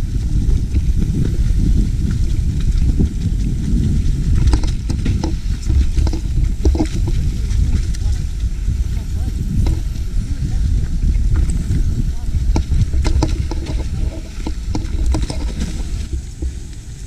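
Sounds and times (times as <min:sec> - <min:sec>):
bike knocks and rattles: 0:00.0 - 0:07.9, 0:11.3 - 0:16.6
bike tyres rumbling on dirt: 0:00.0 - 0:17.0.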